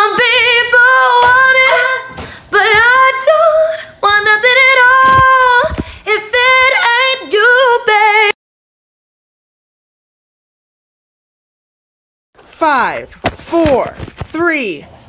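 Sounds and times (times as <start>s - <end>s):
woman singing with vibrato: 0.0s - 8.4s.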